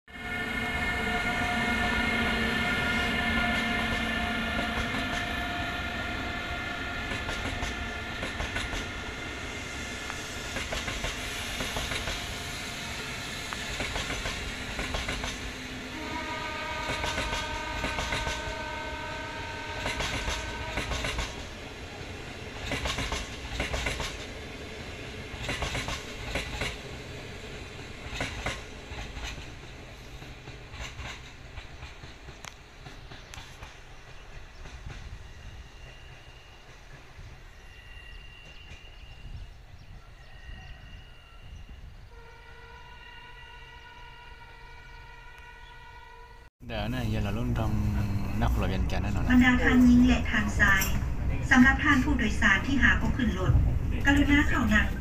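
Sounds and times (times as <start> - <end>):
train whine: 0.1 - 55.0
wheels clicking over rail joints: 22.6 - 24.3.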